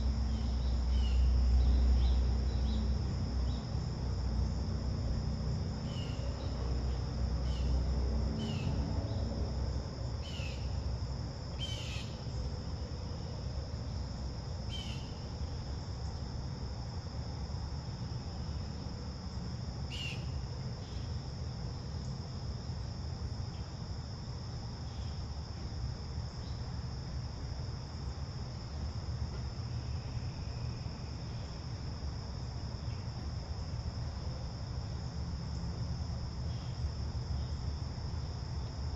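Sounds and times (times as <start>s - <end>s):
low background rumble: 0.0s - 25.1s
insects chirring: 0.0s - 38.9s.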